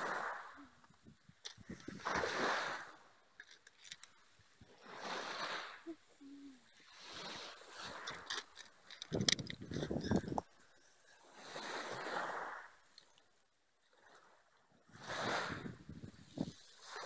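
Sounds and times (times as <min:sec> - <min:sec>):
waves washing onto pebble beach: 0:00.0 - 0:00.6, 0:01.6 - 0:03.1, 0:04.7 - 0:05.9, 0:06.8 - 0:10.4, 0:11.2 - 0:12.8.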